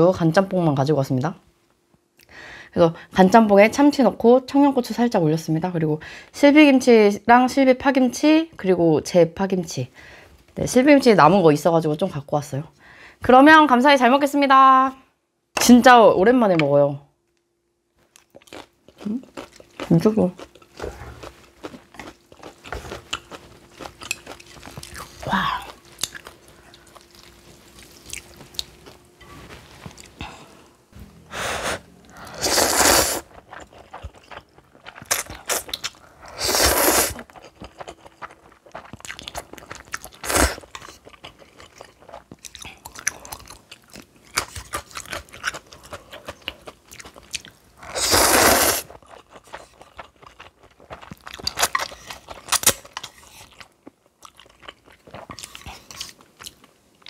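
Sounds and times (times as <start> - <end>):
close chewing and crunching: 18.0 - 29.0, 33.0 - 36.2, 37.1 - 47.6, 48.7 - 57.0.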